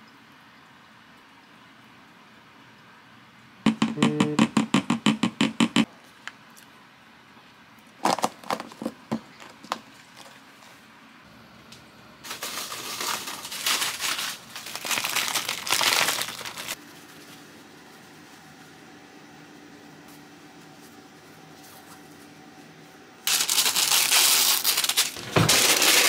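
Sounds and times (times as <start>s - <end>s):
spoon knocking on plastic container: 3.7s - 5.9s
plastic bag crinkling: 8.0s - 10.4s, 12.2s - 16.8s, 23.3s - 26.0s.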